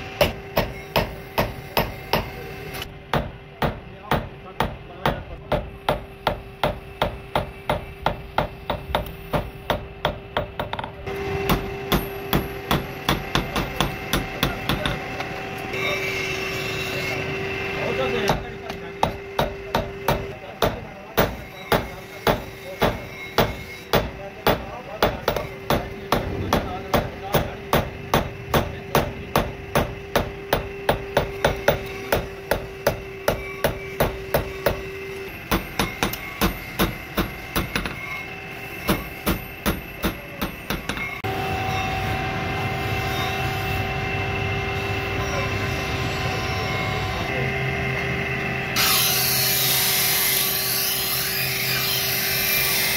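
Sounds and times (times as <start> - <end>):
hammer striking steel on anvil: 0.2 - 17.2, 18.2 - 42.2
grinding wheel motor whine: 6.9 - 52.9.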